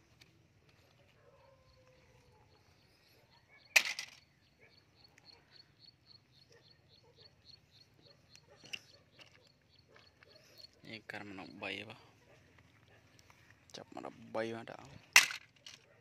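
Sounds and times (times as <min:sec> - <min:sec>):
faint high chirping: 0:01.2 - 0:12.4
plastic toy vehicles clattering: 0:03.7 - 0:04.3, 0:15.0 - 0:15.9.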